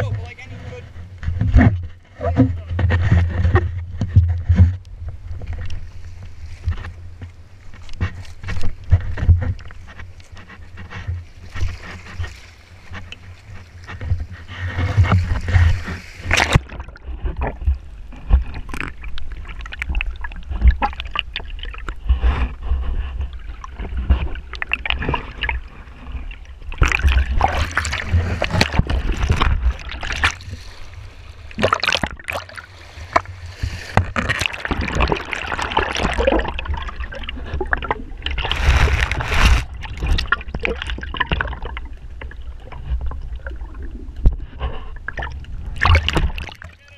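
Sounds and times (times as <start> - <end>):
water and bubbles crackling: 0.0 - 46.9
underwater rushing rumble: 11.2 - 46.8
sea water splashing on rocks: 11.5 - 17.7, 23.8 - 41.9, 45.1 - 46.9.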